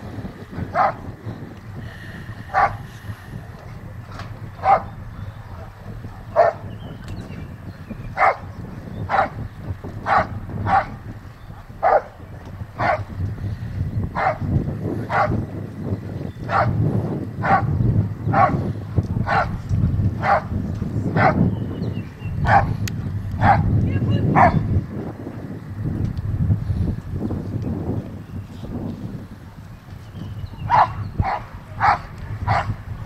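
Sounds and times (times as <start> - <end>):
dog barking: 0.7 - 1.0, 2.5 - 2.8, 4.6 - 4.9, 6.3 - 6.6, 8.2 - 8.5, 9.1 - 9.4, 10.0 - 11.0, 11.8 - 12.1, 12.8 - 13.1, 14.2 - 14.4, 15.1 - 15.4, 16.5 - 16.8, 17.4 - 17.7, 18.3 - 18.6, 19.2 - 19.6, 20.2 - 20.5, 21.2 - 21.4, 22.4 - 22.7, 23.4 - 23.7, 24.3 - 24.6, 30.7 - 32.8.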